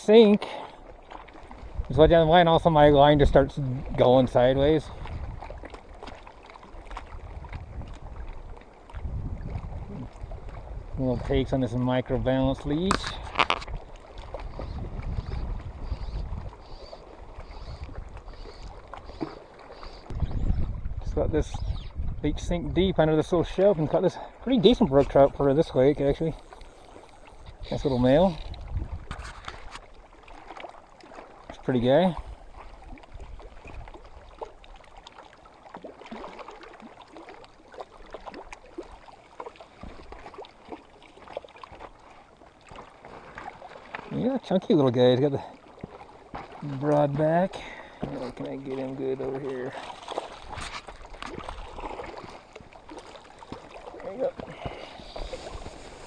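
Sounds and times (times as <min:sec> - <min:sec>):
wind rumbling on microphone: 0:01.5 - 0:05.6, 0:06.8 - 0:18.8, 0:20.0 - 0:23.6, 0:24.7 - 0:29.9, 0:54.4 - 0:56.0
waves lapping on rocky shore: 0:24.0 - 0:56.0.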